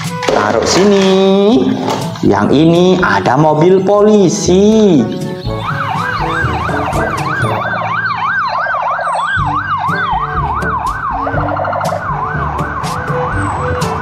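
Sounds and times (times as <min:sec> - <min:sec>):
police siren wailing: 0:04.2 - 0:14.0.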